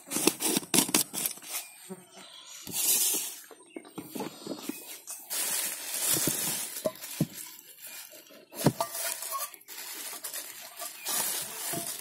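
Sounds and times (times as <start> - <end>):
rustling: 4.1 - 12.0
plastic containers knocking: 5.9 - 7.8, 8.4 - 12.0.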